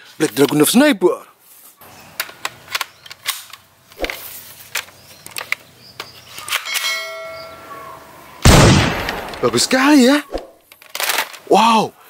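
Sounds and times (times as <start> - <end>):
bell-like ding: 6.7 - 7.9.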